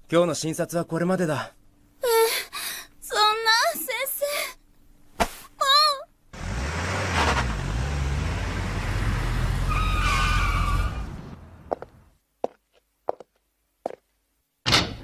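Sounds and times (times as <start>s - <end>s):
tires or brakes squealing: 6.4s - 11.7s.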